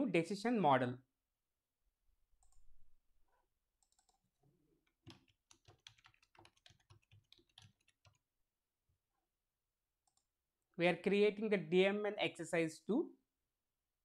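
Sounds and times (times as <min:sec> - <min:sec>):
keyboard typing: 0:03.8 - 0:08.3.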